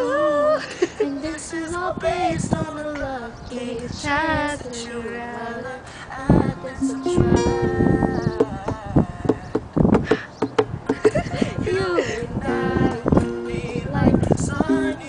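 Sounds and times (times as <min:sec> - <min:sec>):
young women singing pop melody: 0:00.0 - 0:09.7, 0:10.9 - 0:15.0
strummed ukulele: 0:06.8 - 0:08.5, 0:14.7 - 0:15.0
acoustic guitar: 0:06.8 - 0:10.2, 0:11.1 - 0:15.0.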